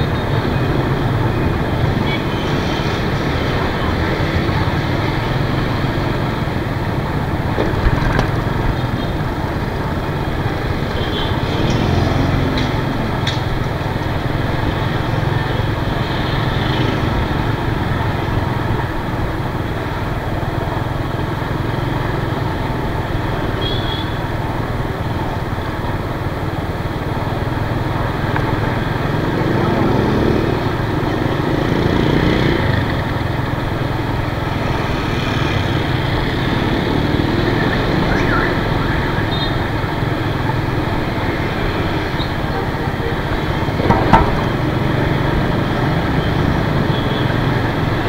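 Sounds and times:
road and wind noise: 0:00.0 - 0:48.0.

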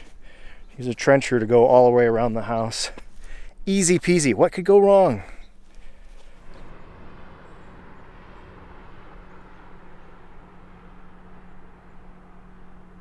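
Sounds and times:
distant engine humming: 0:05.2 - 0:13.0
rushing noise: 0:06.0 - 0:13.0.

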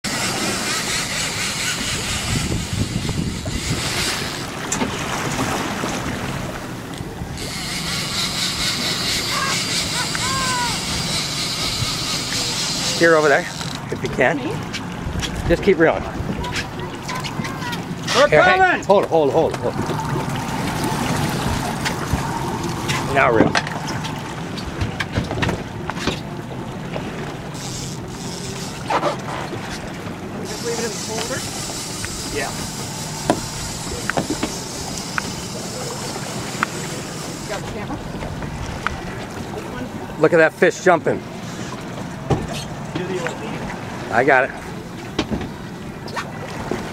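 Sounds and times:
boat motor running: 0:00.0 - 0:46.9
choppy water splashing: 0:00.0 - 0:46.9
wind on microphone: 0:00.3 - 0:07.8
wind buffeting microphone: 0:01.8 - 0:07.5, 0:13.8 - 0:18.1.

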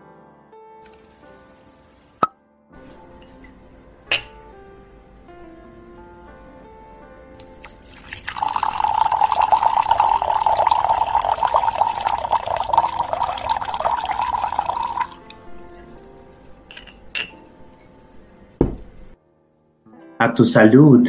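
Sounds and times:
soft background music: 0:00.0 - 0:21.0
drink pouring into glass: 0:00.8 - 0:01.3, 0:07.4 - 0:16.0.

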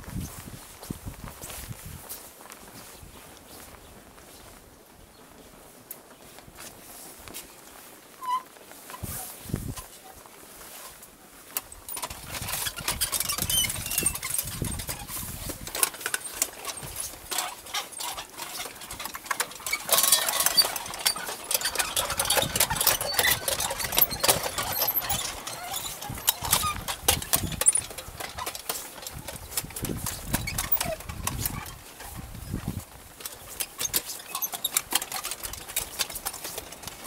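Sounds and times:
prayer wheels clattering and creaking: 0:07.7 - 0:37.0.

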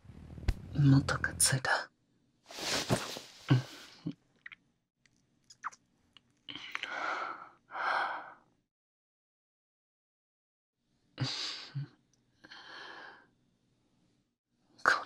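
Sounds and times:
wet mouth clicks: 0:05.5 - 0:07.0.

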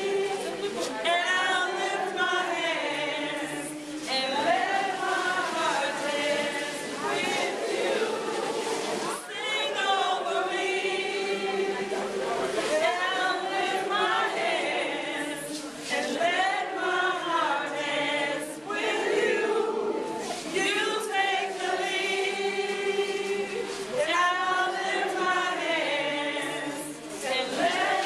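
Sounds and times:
women singing in chorus: 0:00.0 - 0:28.0.

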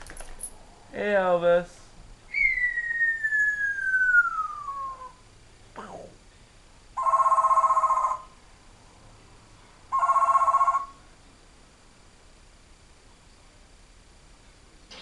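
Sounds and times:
parrot mimicking telephone ring: 0:07.0 - 0:08.3, 0:09.9 - 0:11.0.

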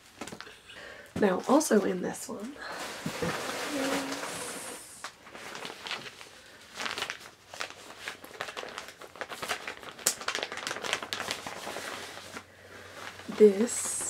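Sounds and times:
packaging crinkling and rustling: 0:00.0 - 0:00.6, 0:02.7 - 0:14.0.

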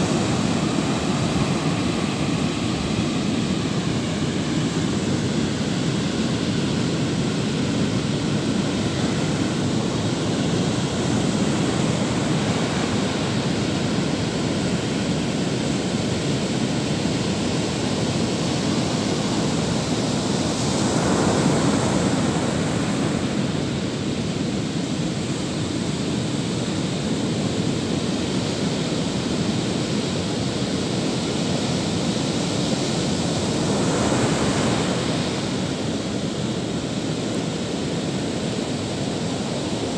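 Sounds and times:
ocean surf breaking: 0:00.0 - 0:07.4, 0:08.4 - 0:14.7, 0:32.4 - 0:39.9.

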